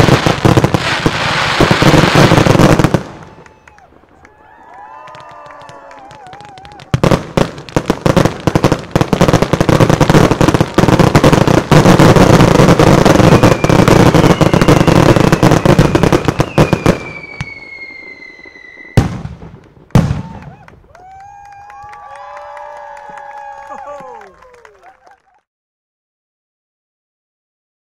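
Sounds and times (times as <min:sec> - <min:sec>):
fireworks bangs and crackles: 0:00.0 - 0:24.2
whistle falling in pitch: 0:16.4 - 0:19.0.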